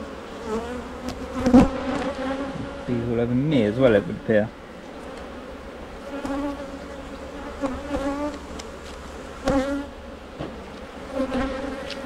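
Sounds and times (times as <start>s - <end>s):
honey bees buzzing: 0.0s - 12.0s.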